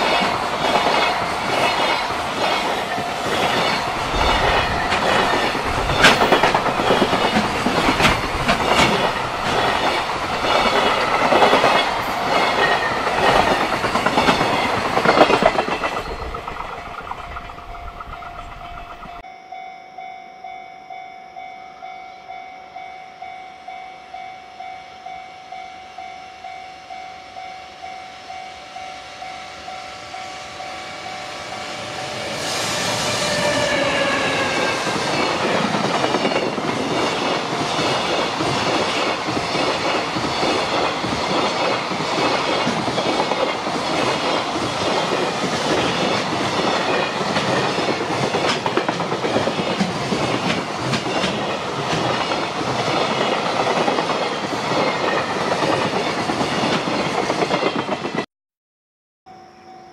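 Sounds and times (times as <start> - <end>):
container wagons rumbling: 0.0 - 19.2
wheels clacking over rail joints: 0.0 - 19.2, 33.0 - 58.2
electric locomotive passing: 0.0 - 19.3, 21.4 - 58.2
level crossing warning bell: 0.0 - 32.4.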